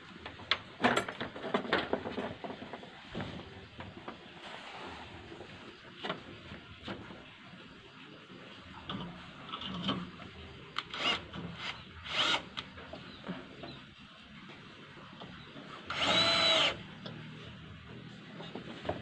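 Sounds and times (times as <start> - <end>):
cordless drill drilling into wood: 10.9 - 12.5, 15.9 - 16.8.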